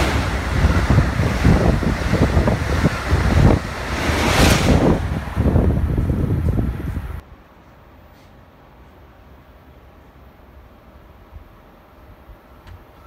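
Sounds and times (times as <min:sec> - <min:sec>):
train rushing past: 0:00.0 - 0:07.2
wheel rumble and thumping: 0:00.0 - 0:07.2
wind buffeting microphone: 0:00.0 - 0:07.2.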